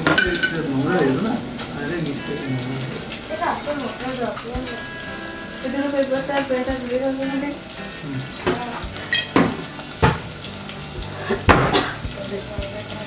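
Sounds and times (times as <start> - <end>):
bottles and cups clinking: 0.0 - 3.0, 8.1 - 10.3
held pitched tone: 0.0 - 9.4.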